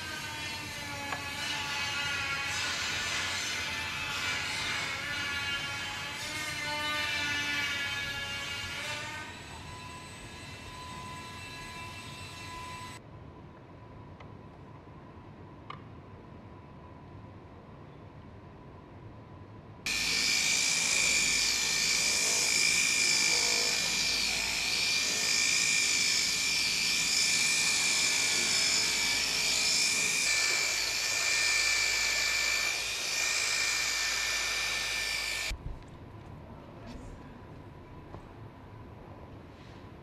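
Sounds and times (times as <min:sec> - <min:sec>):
rotary polisher whining: 0:19.9 - 0:35.5.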